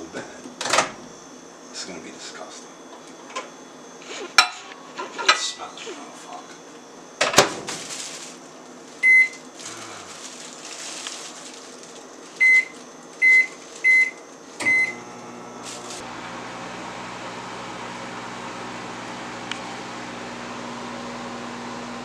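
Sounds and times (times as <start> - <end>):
microwave oven humming: 0.0 - 22.0
microwave keypad beeps: 9.0 - 9.4, 12.4 - 15.0.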